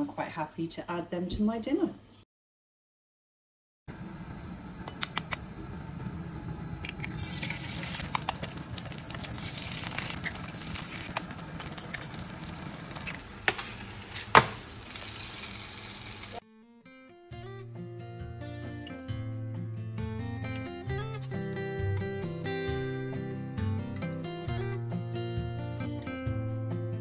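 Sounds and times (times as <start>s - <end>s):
eggs sizzling in frying pan: 6.8s - 16.4s.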